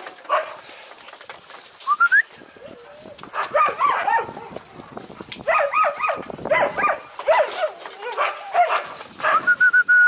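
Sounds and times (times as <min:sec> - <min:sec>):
dogs yelping and barking: 0:02.6 - 0:09.6.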